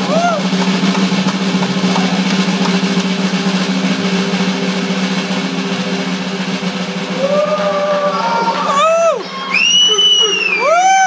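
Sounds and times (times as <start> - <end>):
drum solo: 0.0 - 11.0.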